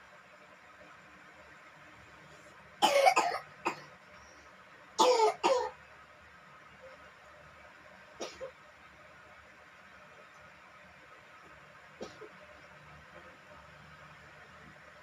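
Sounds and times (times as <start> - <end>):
person coughing: 2.8 - 3.9, 5.0 - 5.8.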